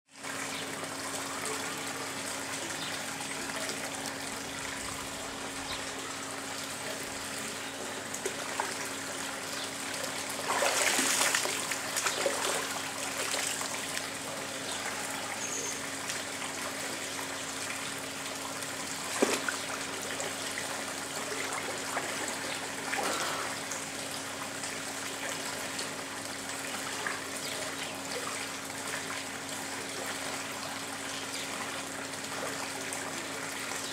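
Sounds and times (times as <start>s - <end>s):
water running and trickling: 0.1s - 33.9s
constant low hum: 0.2s - 33.8s
water splashing: 10.1s - 14.2s.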